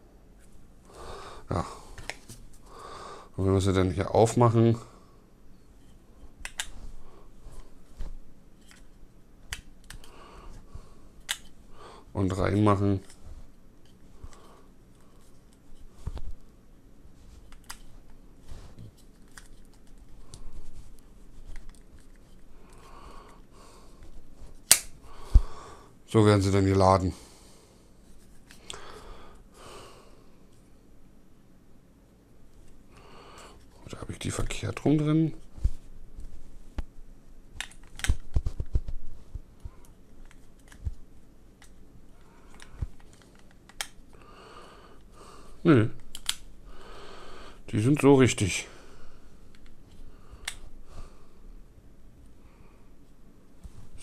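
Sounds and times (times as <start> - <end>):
earbuds clicking into plastic case: 9.5 - 10.2.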